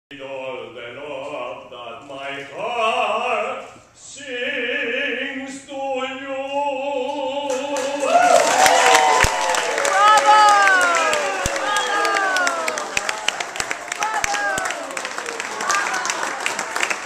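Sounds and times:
male tenor singing operatically: 0:00.1 - 0:08.4.

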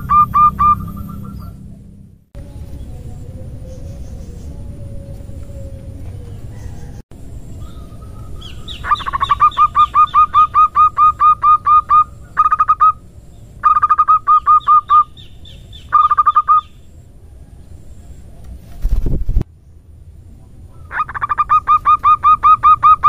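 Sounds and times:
dove rolling call: 0:00.0 - 0:01.6, 0:07.6 - 0:13.0, 0:13.6 - 0:15.1, 0:20.7 - 0:23.0.

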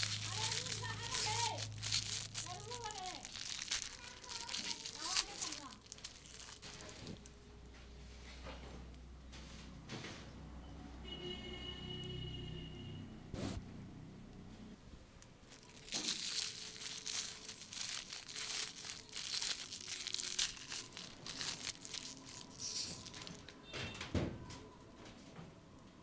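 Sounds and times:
aluminium foil crinkling and tearing: 0:00.0 - 0:07.4, 0:15.5 - 0:23.7.

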